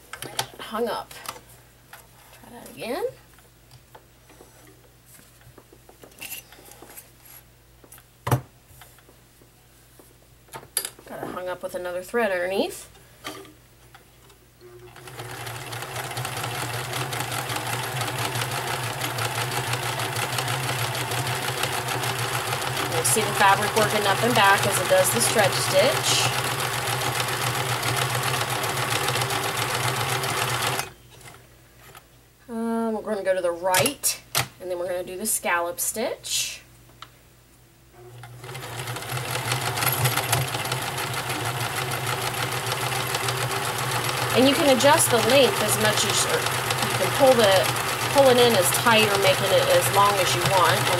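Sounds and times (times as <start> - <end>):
sewing machine running: 14.9 - 30.9, 38.3 - 50.9.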